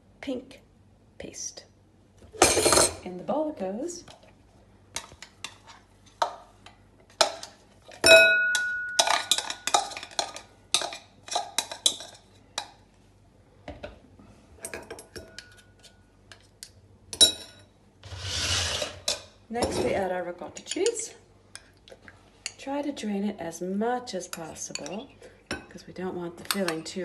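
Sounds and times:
metal spoon scraping a bowl: 18.0 - 19.2.

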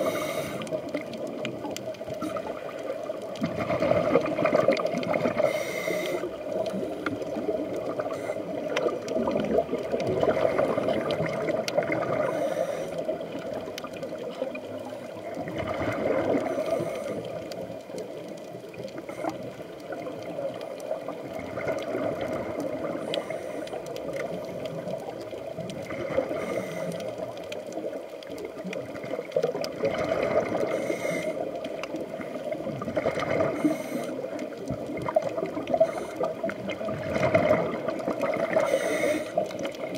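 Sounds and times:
diver's bubbles gurgling: 0.0 - 39.9
muffled underwater rush: 0.0 - 39.9.

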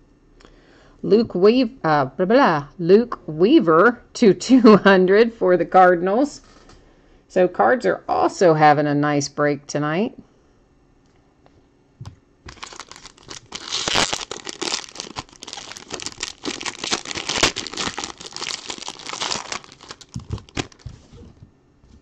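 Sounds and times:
foil wrapper crinkling and tearing: 12.5 - 21.0.

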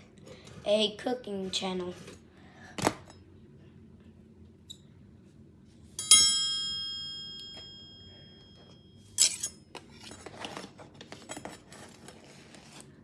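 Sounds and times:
kitchenware scraping and clattering: 9.1 - 12.8.

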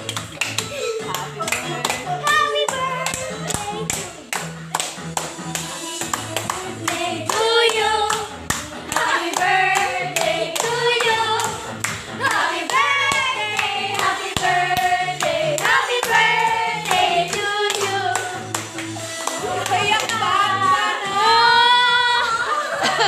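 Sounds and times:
hands clapping: 0.0 - 16.2, 16.8 - 20.3
voices singing: 5.7 - 18.6.

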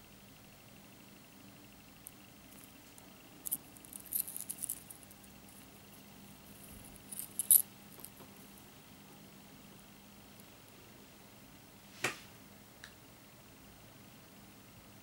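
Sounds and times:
metal chain clinking: 3.4 - 5.1, 6.5 - 7.6.

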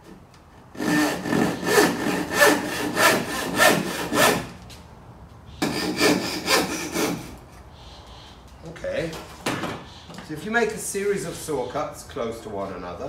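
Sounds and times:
handsaw cutting wood: 0.8 - 4.5, 5.6 - 7.4.

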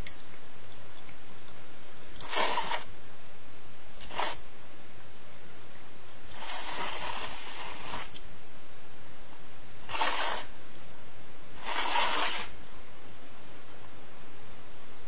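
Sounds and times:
bowl scraping across hard floor: 2.2 - 2.9, 6.3 - 8.2, 9.9 - 10.5, 11.6 - 12.6.

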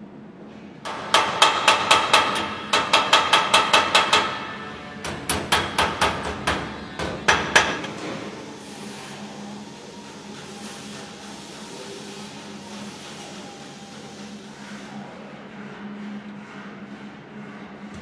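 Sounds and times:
hammer striking sheet metal: 0.8 - 8.3.

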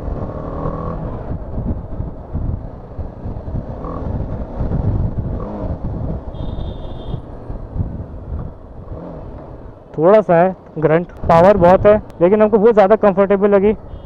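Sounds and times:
motorcycle engine running: 0.0 - 10.0
road and wind rumble: 0.0 - 14.0.

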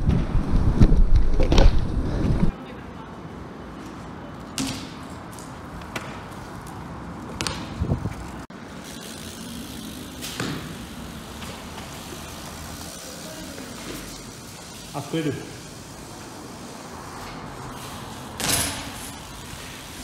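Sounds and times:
bike knocks and thuds on concrete: 4.6 - 6.5, 7.3 - 8.2, 10.2 - 12.3, 18.4 - 19.2.

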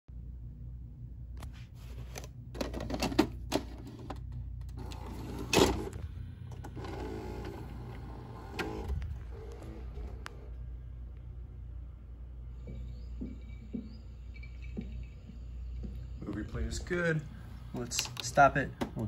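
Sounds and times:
cassette carriage clunk: 2.6 - 3.9
tape loading motor whirring: 2.6 - 10.7.

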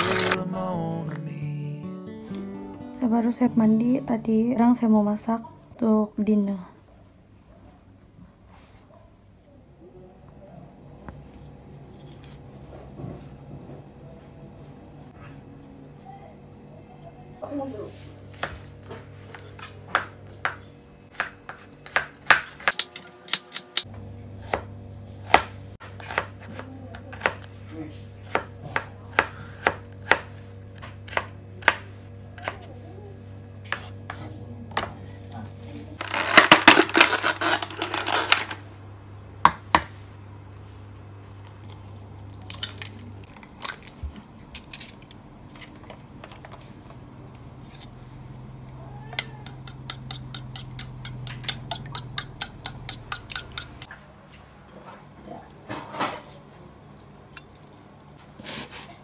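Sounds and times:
knife chopping on wooden board: 19.3 - 27.5, 28.3 - 32.6
chopsticks beating eggs in bowl: 49.5 - 53.8.

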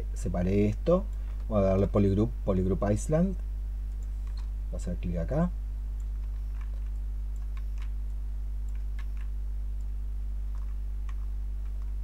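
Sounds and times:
low electrical hum: 0.0 - 12.0
computer keyboard and mouse clicks: 6.0 - 9.9, 10.5 - 12.0.

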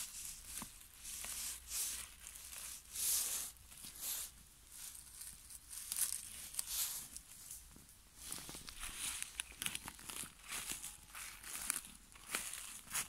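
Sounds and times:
hand raking dry pine needles: 0.0 - 13.0.

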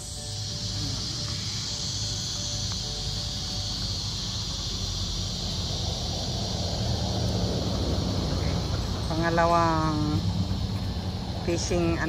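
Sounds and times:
constant low rumble: 0.0 - 12.0
high drone of insects: 0.0 - 12.0.

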